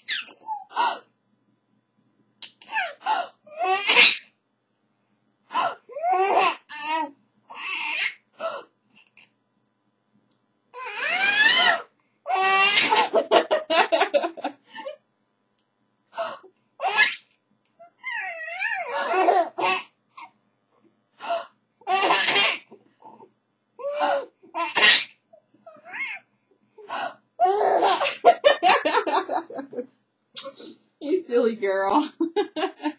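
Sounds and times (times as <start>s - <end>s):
baby laughing: 0.0s - 0.7s, 3.6s - 4.3s, 10.8s - 13.9s, 16.8s - 17.2s, 18.0s - 19.9s, 21.9s - 22.7s, 24.6s - 25.1s, 27.4s - 29.8s
baby cry-laugh: 2.7s - 4.3s, 5.5s - 8.2s, 10.8s - 13.4s, 16.8s - 17.2s, 17.8s - 20.3s, 21.8s - 22.7s, 23.8s - 25.1s, 27.4s - 29.2s.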